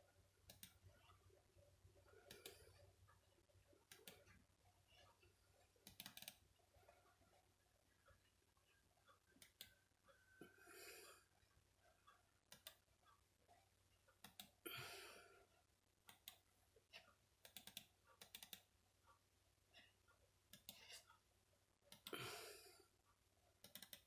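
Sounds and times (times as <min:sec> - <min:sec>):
computer mouse clicking: 0:00.5 - 0:00.8, 0:02.2 - 0:02.7, 0:03.8 - 0:04.4, 0:05.8 - 0:06.4, 0:09.4 - 0:09.8, 0:12.5 - 0:12.8, 0:14.2 - 0:14.6, 0:16.1 - 0:16.4, 0:17.4 - 0:18.7, 0:20.5 - 0:21.0, 0:21.9 - 0:22.1, 0:23.6 - 0:24.0.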